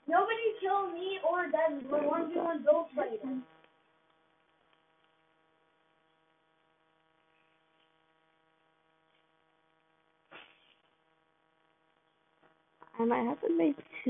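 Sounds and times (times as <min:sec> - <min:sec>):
faint electrical hum: 0:00.0 - 0:14.0.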